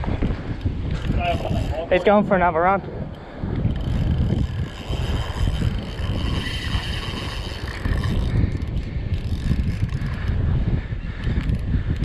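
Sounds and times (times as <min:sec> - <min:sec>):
wind buffeting microphone: 0:00.0 - 0:12.0
fishing reel drag whirring: 0:01.0 - 0:02.2, 0:03.0 - 0:10.4.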